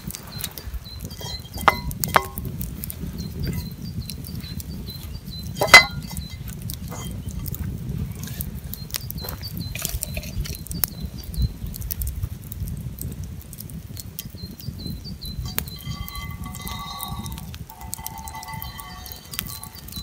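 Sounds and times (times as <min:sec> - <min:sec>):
bird chirping: 0:00.0 - 0:07.5, 0:14.2 - 0:20.0
campfire crackling and popping: 0:00.0 - 0:20.0
low rumble of flames: 0:00.0 - 0:20.0.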